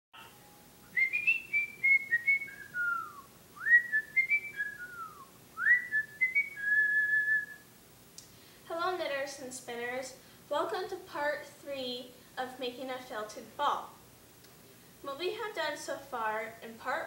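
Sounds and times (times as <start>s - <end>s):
person whistling a tune: 0.9s - 7.6s.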